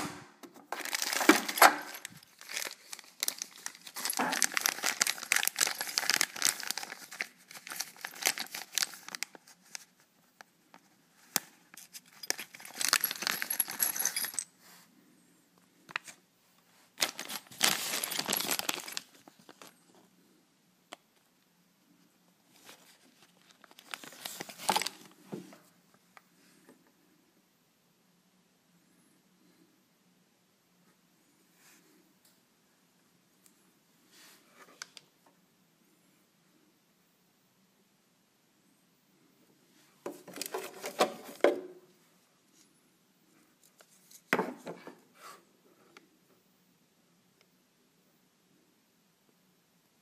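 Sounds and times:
plastic bag crinkling: 0.7s - 9.9s, 11.8s - 14.5s, 17.0s - 19.8s, 22.6s - 25.2s.

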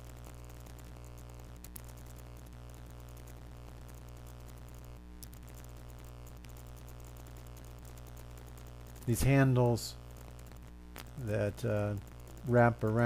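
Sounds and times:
faint clicks: 0.0s - 9.2s, 10.2s - 11.2s
steady low hum: 0.0s - 13.0s.

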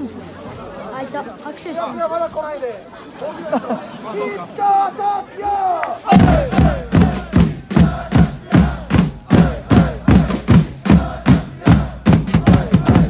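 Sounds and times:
crowd chanting: 3.8s - 13.0s
drum struck in steady beat: 6.1s - 13.0s.

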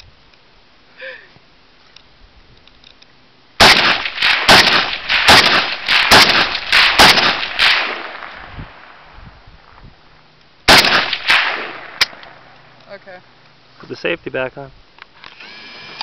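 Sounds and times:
rifle firing rapid shots: 3.6s - 8.4s, 10.7s - 12.2s.

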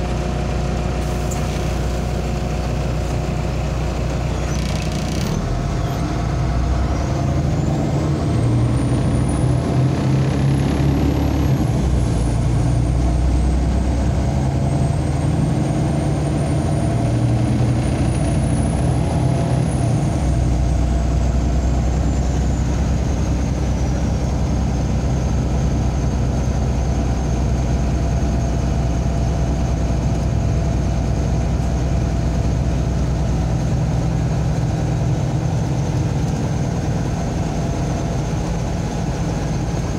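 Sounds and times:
bus engine drone: 0.0s - 39.9s
road noise: 0.0s - 39.9s.

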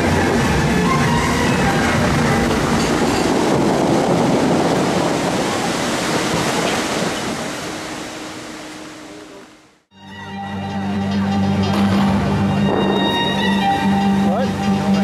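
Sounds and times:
water jets splashing: 0.0s - 9.8s.

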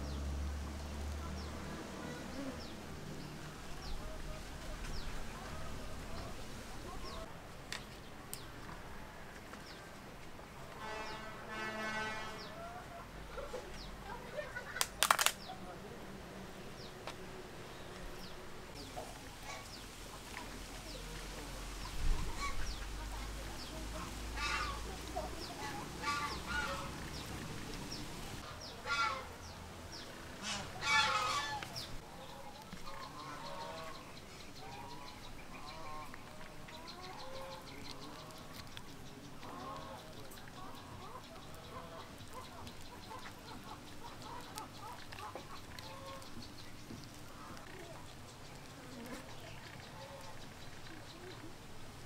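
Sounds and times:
fowl calling: 21.8s - 23.2s, 23.9s - 29.5s, 30.3s - 46.6s, 48.9s - 51.5s.

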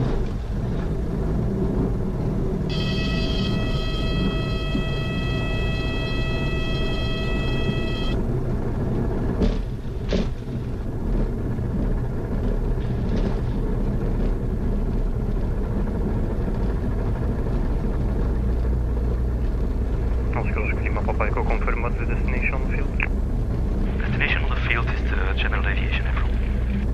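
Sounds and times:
plane engine and propeller rumble: 0.0s - 26.9s
stall warning horn tone: 2.7s - 8.4s.

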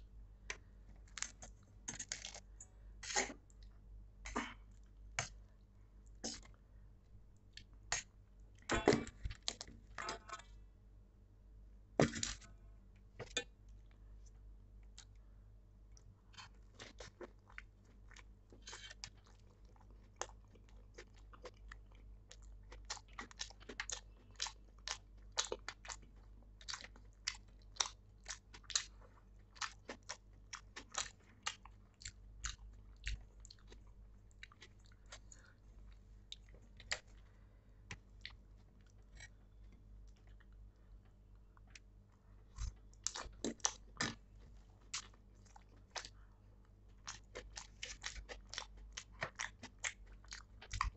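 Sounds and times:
person chewing crunchy food: 0.6s - 3.7s, 16.0s - 40.7s, 42.5s - 50.9s.

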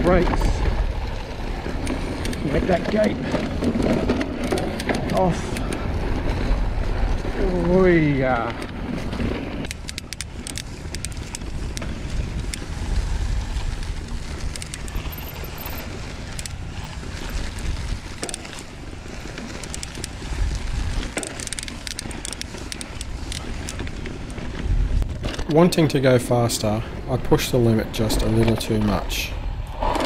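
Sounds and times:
bike clicks and rattles: 0.0s - 30.0s
knobby tyres on ground: 0.0s - 30.0s
wind buffeting microphone: 0.0s - 30.0s.

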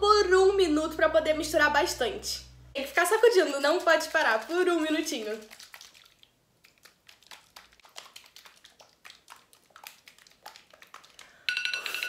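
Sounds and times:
water sloshing in plastic cup: 2.9s - 11.4s
phone timer alarm ringing: 11.5s - 12.0s.

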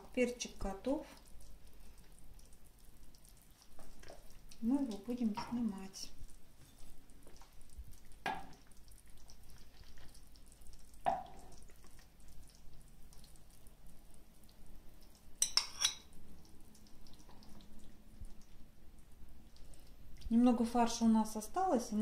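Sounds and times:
sauce dripping: 0.8s - 20.4s
metal spoon clinking on pan: 15.4s - 16.1s.

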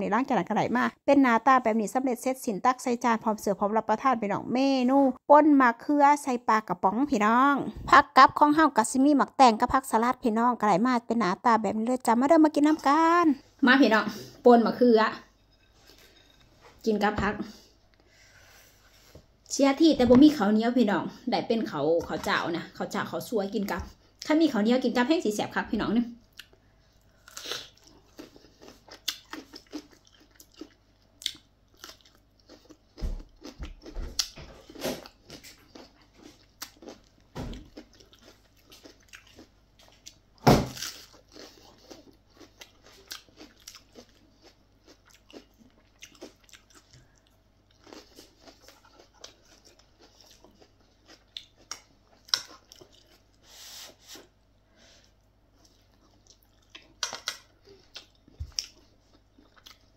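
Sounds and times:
chewing and crunching vegetables: 26.2s - 53.4s, 55.2s - 59.9s.

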